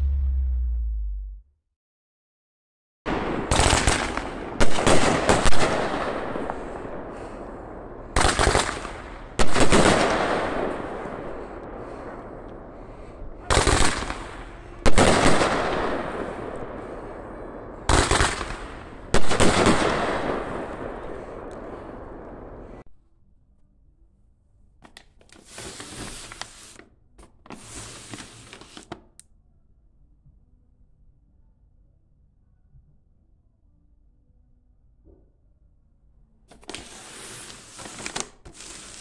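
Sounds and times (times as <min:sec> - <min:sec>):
firework bangs: 0:03.1 - 0:07.4, 0:08.1 - 0:12.2, 0:13.4 - 0:22.8
firework crackle: 0:03.5 - 0:07.4, 0:08.2 - 0:11.3, 0:13.4 - 0:16.6, 0:17.8 - 0:22.8, 0:25.4 - 0:26.8, 0:27.6 - 0:28.8, 0:36.6 - 0:39.0.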